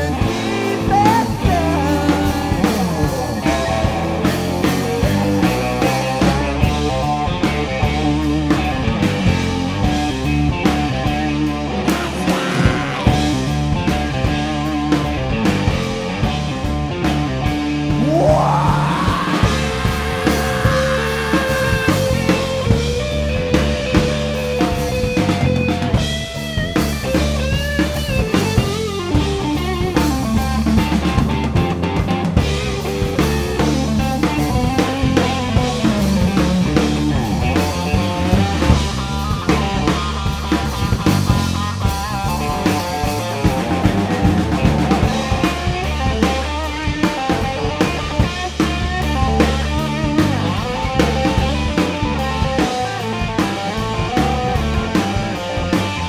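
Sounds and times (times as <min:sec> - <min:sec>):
bass guitar: 0:00.0 - 0:56.0
drum kit: 0:00.0 - 0:56.0
electric guitar bending notes: 0:17.8 - 0:26.6.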